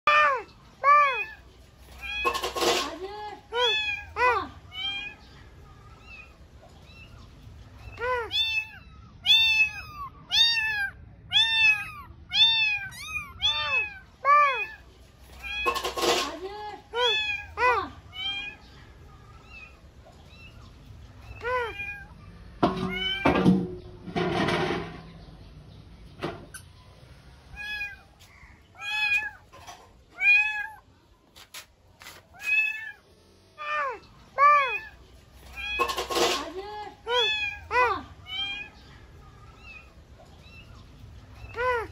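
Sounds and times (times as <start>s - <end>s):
kittens meowing: 3.5s - 16.2s, 16.9s - 20.7s, 21.3s - 22.3s, 27.5s - 29.5s, 37.0s - 40.8s
kittens mewing: 7.8s - 14.8s.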